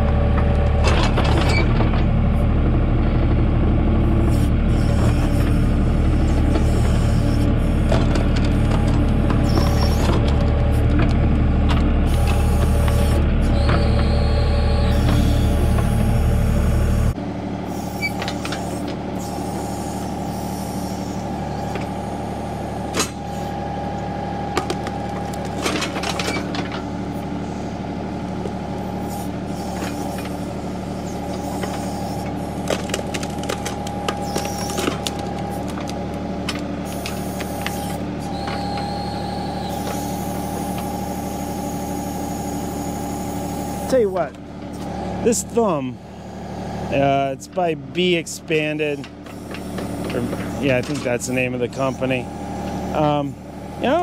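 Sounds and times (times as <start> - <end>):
tractor engine running: 0.0 - 54.0
high hydraulic whine: 12.0 - 23.8, 36.5 - 47.1.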